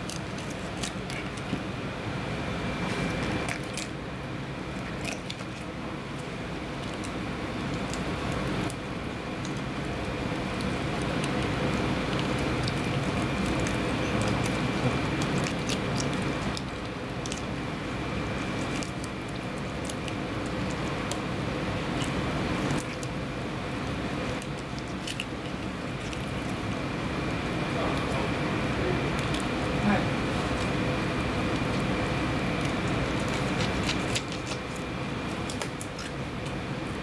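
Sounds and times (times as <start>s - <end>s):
steady background hum: 0.0s - 37.0s
knife clicking and scraping fish: 32.6s - 36.2s.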